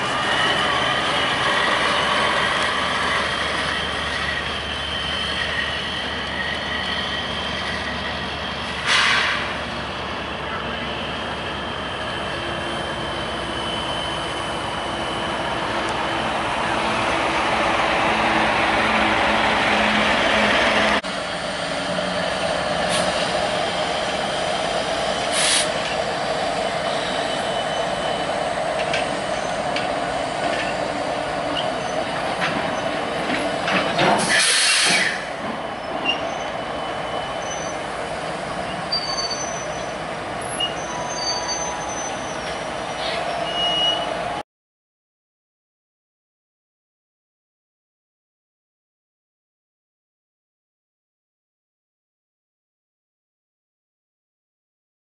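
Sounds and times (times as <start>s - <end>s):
high wheel squeals: 0.0s - 16.2s, 22.8s - 44.4s
locomotive engines running: 0.0s - 44.4s
rumble of train cars: 0.0s - 44.4s
hiss of air: 8.8s - 9.5s, 25.3s - 25.8s, 34.2s - 35.3s.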